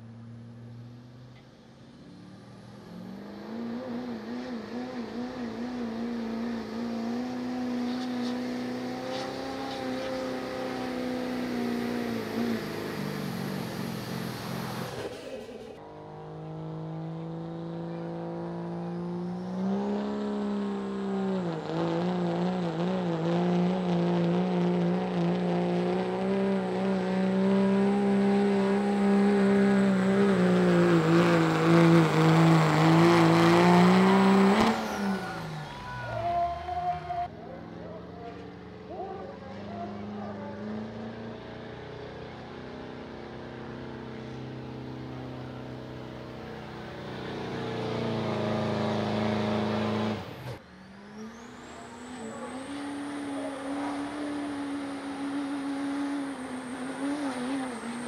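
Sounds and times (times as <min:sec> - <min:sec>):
second truck engine revving: 0:00.0 - 0:37.3, 0:39.6 - 0:58.0
truck engine running at high revs: 0:00.0 - 0:58.0.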